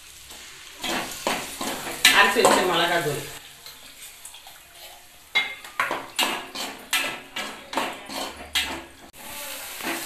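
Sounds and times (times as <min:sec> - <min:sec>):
metal ladle clanking on pot: 0:05.3 - 0:09.1.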